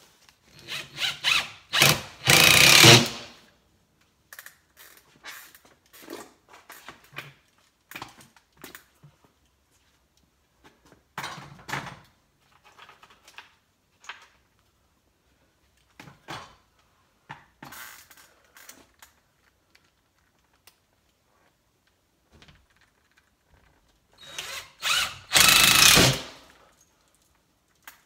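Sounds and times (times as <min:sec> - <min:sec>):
drill and screws being handled: 0:22.7 - 0:28.0.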